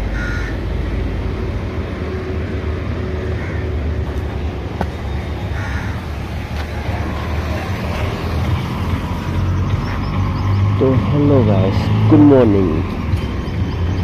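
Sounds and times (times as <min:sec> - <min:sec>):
vehicle engine idling: 0:00.0 - 0:14.0
crow cawing: 0:00.2 - 0:00.6, 0:03.2 - 0:03.8, 0:05.5 - 0:06.2.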